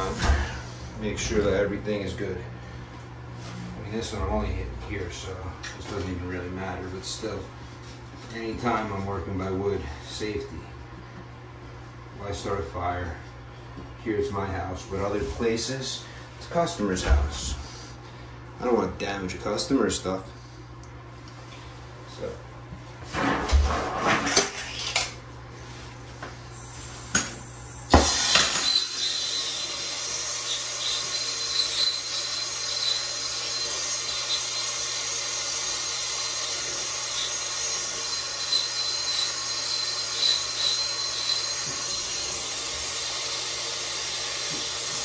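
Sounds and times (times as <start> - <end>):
torch flame hissing: 26.6 - 45.0.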